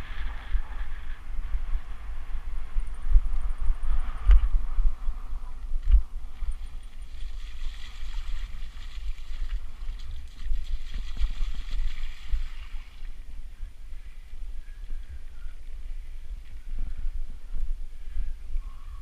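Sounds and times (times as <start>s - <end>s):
wind buffeting microphone: 0.0s - 19.0s
mountain bike rolling on dirt: 5.8s - 13.1s.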